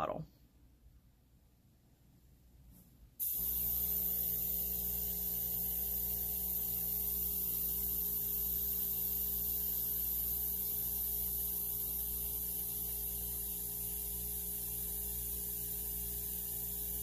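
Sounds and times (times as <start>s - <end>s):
compressed air hissing: 3.2s - 17.0s.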